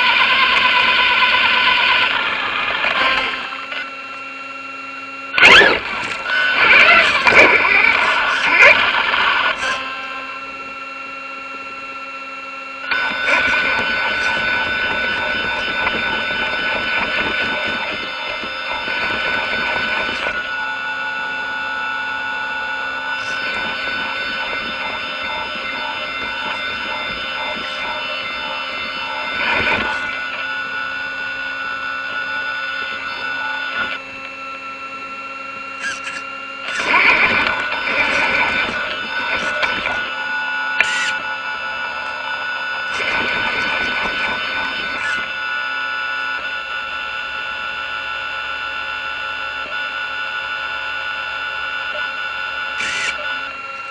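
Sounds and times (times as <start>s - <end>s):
high electronic motor whine: 0.0s - 53.9s.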